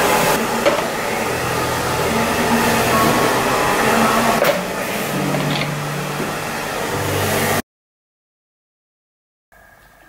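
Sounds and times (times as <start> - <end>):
electric blower whirring: 0.0 - 7.6.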